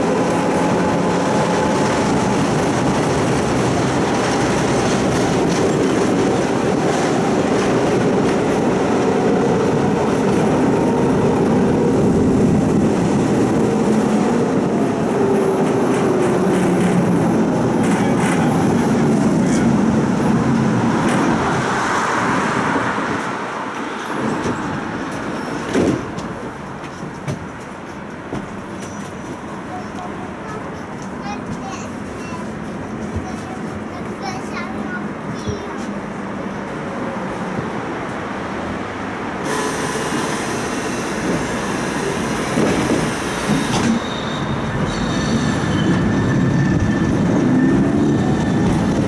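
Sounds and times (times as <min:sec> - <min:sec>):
tram rumbling on rails: 0:00.0 - 0:49.0
tram whining tones: 0:39.0 - 0:49.0.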